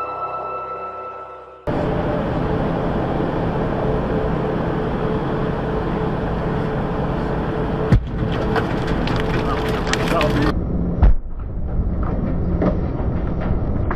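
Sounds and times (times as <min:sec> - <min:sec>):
music: 0:00.0 - 0:01.7
truck cab engine and road drone: 0:01.6 - 0:13.9.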